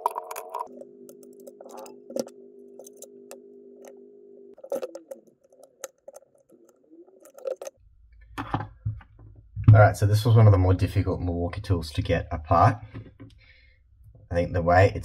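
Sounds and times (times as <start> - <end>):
soft steady multi-tone hum: 0.0 - 15.0
plastic parts clicking and tapping: 4.6 - 7.7.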